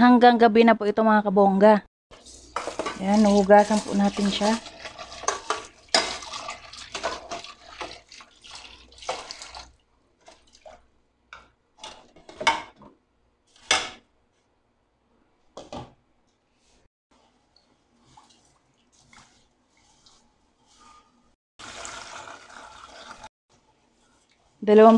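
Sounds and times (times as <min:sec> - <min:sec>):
water splashes: 0:02.1 - 0:10.8
rice being rubbed and rinsed: 0:02.1 - 0:10.9, 0:16.6 - 0:24.9
tap water running into pot: 0:02.2 - 0:10.8, 0:21.6 - 0:23.3.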